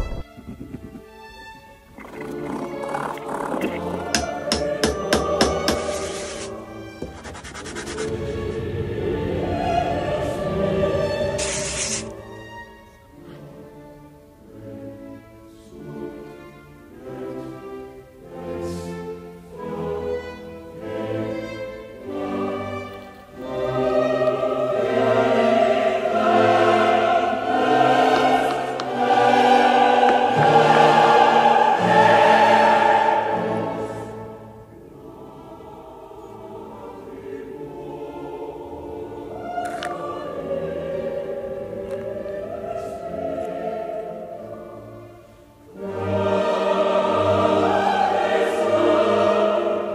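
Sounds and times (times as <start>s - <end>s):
choir singing: 2.0s - 49.9s
orchestra playing: 8.0s - 35.3s.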